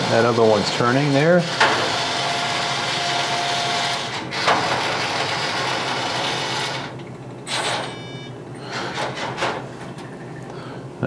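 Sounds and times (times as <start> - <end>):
vending machine motors running: 0.0 - 10.7.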